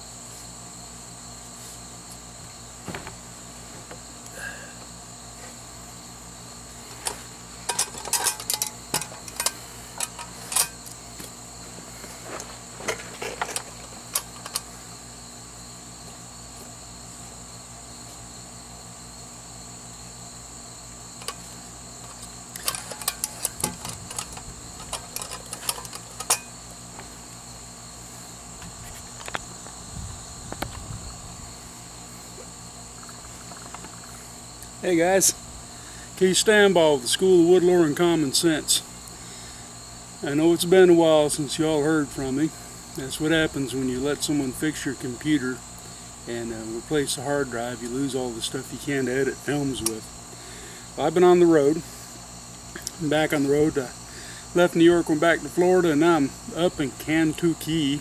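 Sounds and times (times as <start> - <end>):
crickets trilling: 0.0 - 58.0
metal mess kit clinking on wood: 7.6 - 10.8, 22.6 - 26.5.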